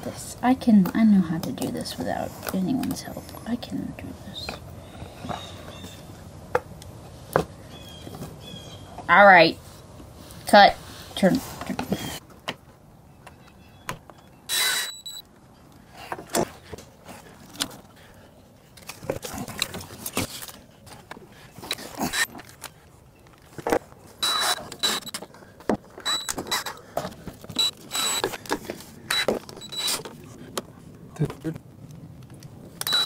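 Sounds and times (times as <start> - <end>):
screw gun whining: 14.5 - 15.2, 24.2 - 25.3, 26.0 - 26.8, 27.5 - 30.1, 32.8 - 33.0
parts and tools rattling: 23.5 - 30.2.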